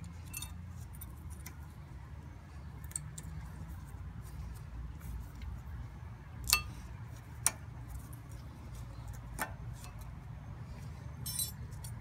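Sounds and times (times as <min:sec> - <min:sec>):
jingling rattle: 0:11.2 - 0:12.0.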